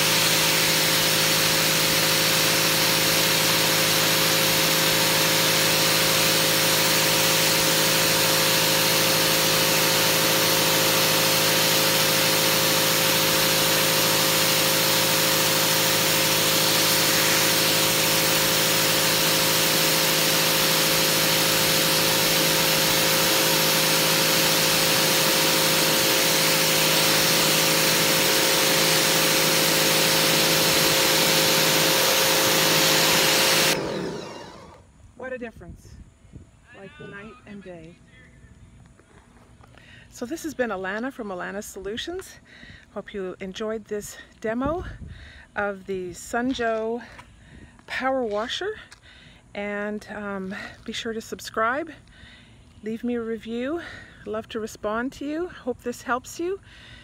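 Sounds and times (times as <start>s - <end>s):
water jet hissing on concrete: 0.0s - 34.2s
pressure washer motor humming: 0.0s - 34.9s.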